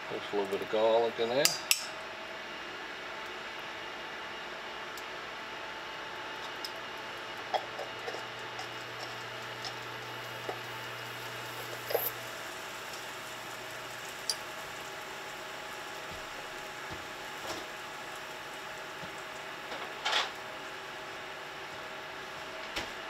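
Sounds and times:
butter sizzling in a skillet: 7.6s - 21.6s.

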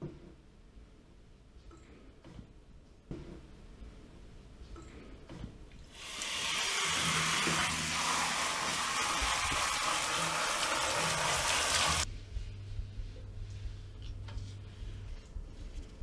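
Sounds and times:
tap water running into sink: 6.0s - 12.0s.

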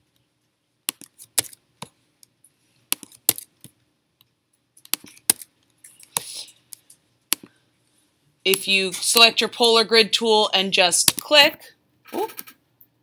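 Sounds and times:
mouse and keyboard clicks: 0.9s - 2.0s, 2.9s - 3.8s, 4.8s - 7.5s.

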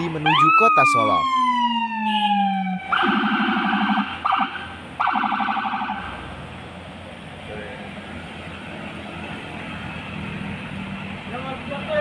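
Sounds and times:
electronic siren wail: 0.2s - 6.2s
pulsing siren buzz blasts: 0.2s - 6.2s.

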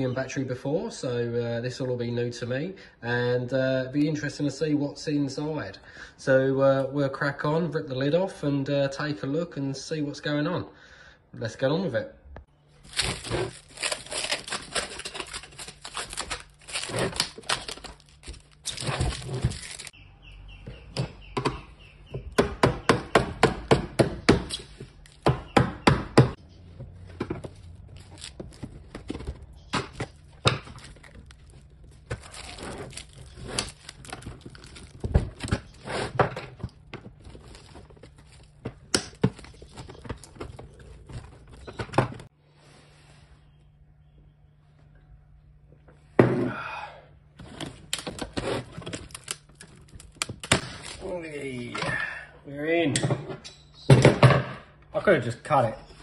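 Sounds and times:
plastic wrap rustling: 12.7s - 19.9s, 27.5s - 42.3s, 47.8s - 51.0s
plastic cracking: 12.8s - 19.9s, 27.8s - 35.8s, 47.8s - 51.0s.

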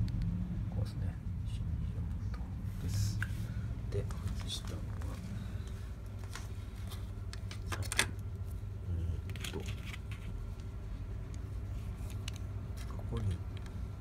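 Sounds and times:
steady low hum: 0.0s - 14.0s
clicks and rattles of handled parts: 9.2s - 10.3s.

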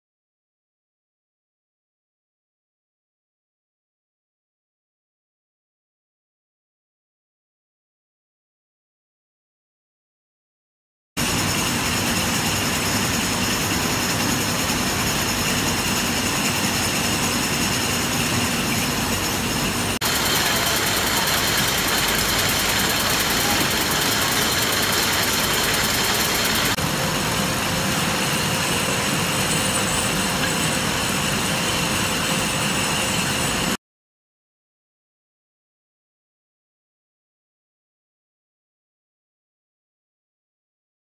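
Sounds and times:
bottling machinery running: 11.2s - 33.8s
fast high ticking: 20.0s - 26.8s.

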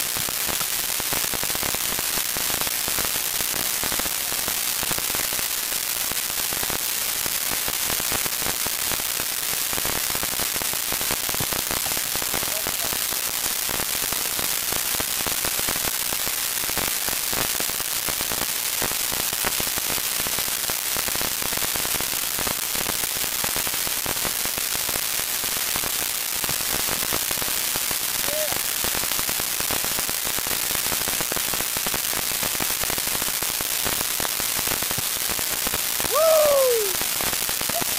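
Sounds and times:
steady hiss with crackling: 0.0s - 37.9s
person shouting: 28.3s - 28.6s, 36.1s - 37.0s.

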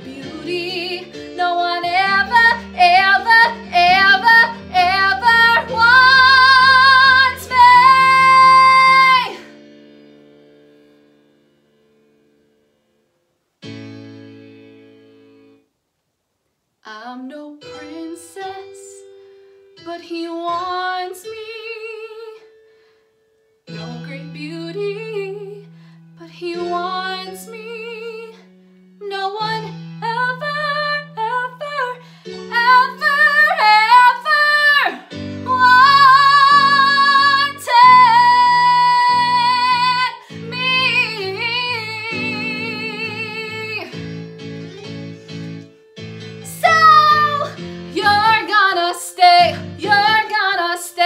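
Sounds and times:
woman singing with vibrato: 0.0s - 9.5s, 23.8s - 25.6s, 29.0s - 44.0s, 46.4s - 51.0s
instrumental accompaniment: 40.3s - 50.7s.

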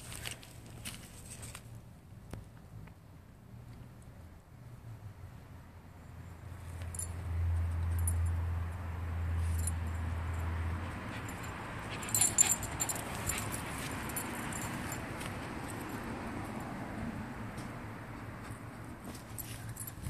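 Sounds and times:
metal collar tags jingling: 6.8s - 8.4s, 9.4s - 16.1s, 19.2s - 20.0s.

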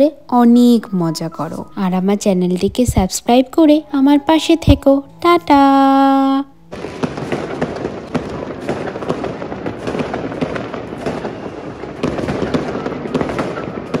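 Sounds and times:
fireworks crackling and popping: 6.7s - 14.0s
sharp fireworks bangs: 6.7s - 14.0s.

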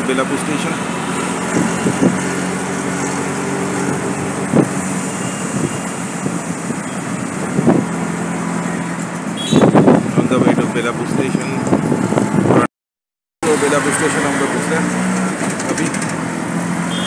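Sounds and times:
road and traffic noise: 0.0s - 12.7s, 13.4s - 17.0s
vehicle engine running: 0.0s - 12.7s.

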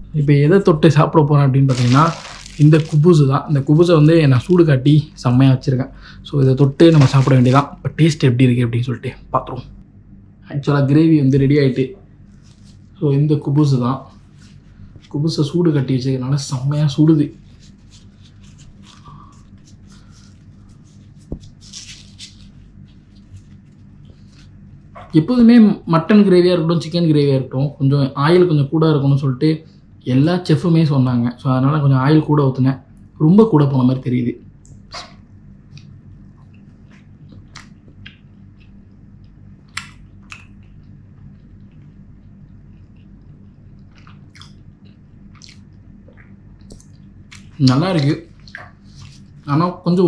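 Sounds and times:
low steady hum: 0.0s - 50.0s
person chewing: 1.7s - 3.2s, 34.8s - 47.6s
bread rustling: 1.7s - 3.3s, 6.8s - 7.8s, 12.2s - 13.0s, 17.3s - 24.9s.

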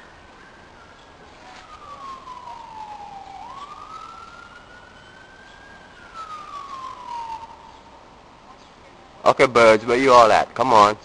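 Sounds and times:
siren wailing: 0.0s - 8.4s.

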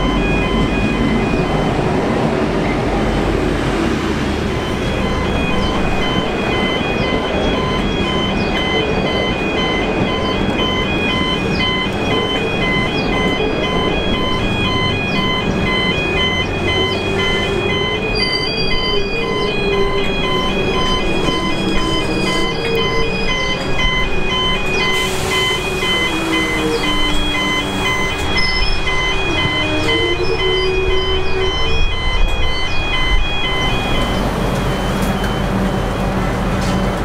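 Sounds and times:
level crossing warning bells: 0.0s - 37.0s
train carriages rumbling past: 0.0s - 37.0s
high wheel squeal: 24.4s - 35.2s.

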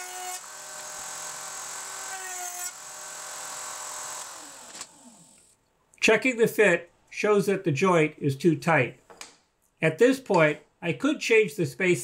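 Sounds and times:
router running and winding down: 0.0s - 5.6s.

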